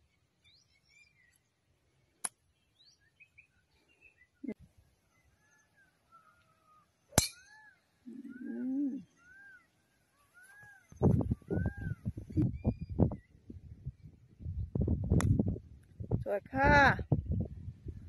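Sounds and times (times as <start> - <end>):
birds chirping: 2.4 - 14.7
low bird cry: 5.2 - 13.3
golf club striking ball: 7.1 - 7.6.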